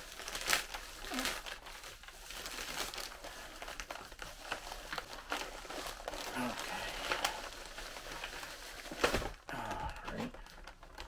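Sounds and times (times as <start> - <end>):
plastic mailer crinkling: 0.0 - 11.0.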